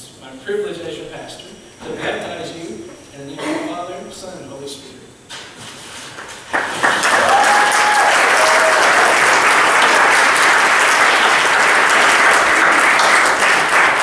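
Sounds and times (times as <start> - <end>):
crowd applauding: 6.2 - 14.0.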